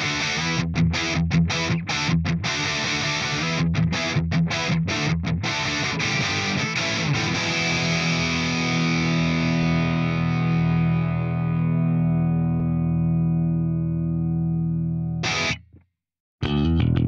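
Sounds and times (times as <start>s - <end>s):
electric guitar chord ringing: 5.5s - 15.6s.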